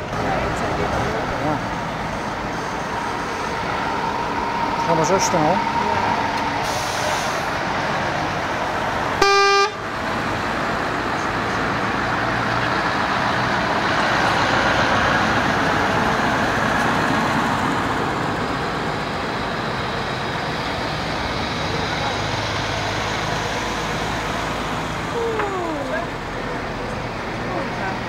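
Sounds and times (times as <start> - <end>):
diesel trucks driving past: 0.0 - 28.0
truck horn blast: 9.2 - 9.8.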